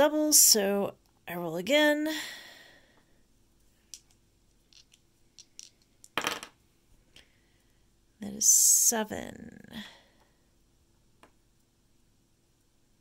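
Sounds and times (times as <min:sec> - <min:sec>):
dice clattering on board: 0:03.9 - 0:06.6.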